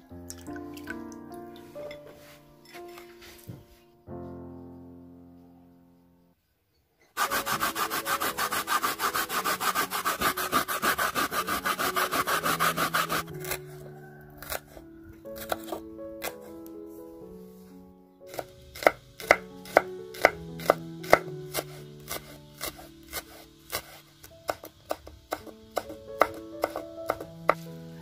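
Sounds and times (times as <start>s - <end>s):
coconut grating rasping strokes: 7.2s - 13.8s, 14.4s - 14.8s, 15.4s - 16.5s, 18.3s - 25.5s, 26.2s - 27.6s.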